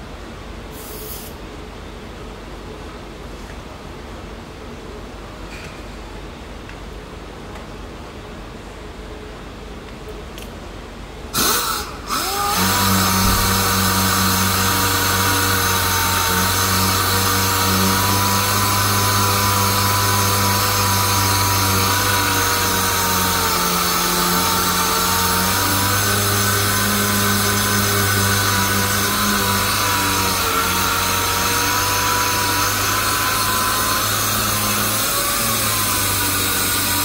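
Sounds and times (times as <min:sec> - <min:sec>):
power sander whining on metal: 0:11.4 - 0:37.0.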